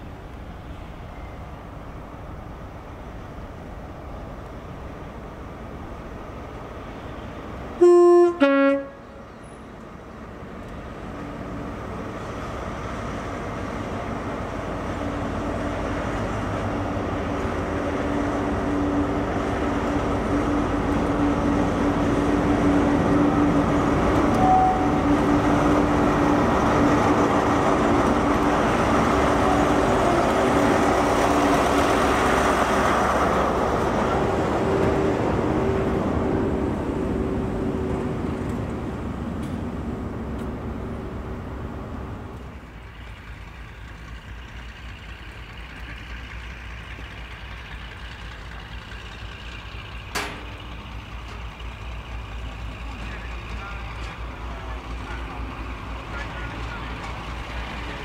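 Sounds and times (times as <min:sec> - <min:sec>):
diesel locomotive engines: 0:00.0 - 0:58.0
two-note train horn: 0:07.8 - 0:09.2, 0:24.3 - 0:25.2.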